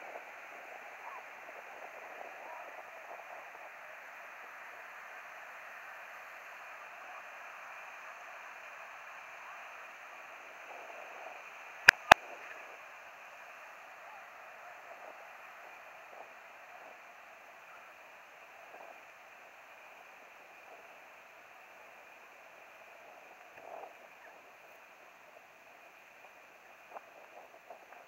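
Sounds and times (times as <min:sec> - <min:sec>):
sharp clicks: 0:11.8 - 0:12.2.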